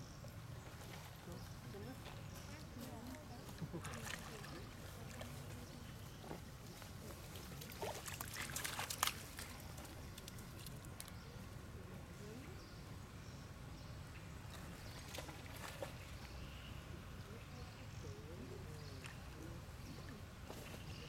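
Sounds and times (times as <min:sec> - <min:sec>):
monkeys splashing in water: 0:03.4 - 0:11.2, 0:14.4 - 0:16.4.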